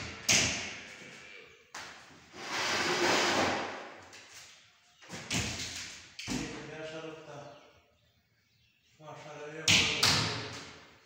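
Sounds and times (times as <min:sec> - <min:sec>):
rough rushing scrape: 0:02.3 - 0:03.8.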